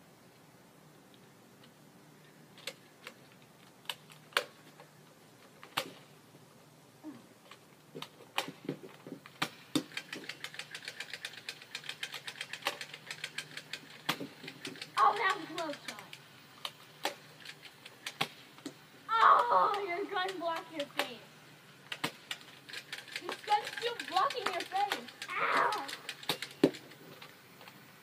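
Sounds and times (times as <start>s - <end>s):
faint whir: 0.0s - 28.0s
toy blaster clicking: 9.3s - 18.4s, 19.3s - 21.1s, 21.9s - 26.9s.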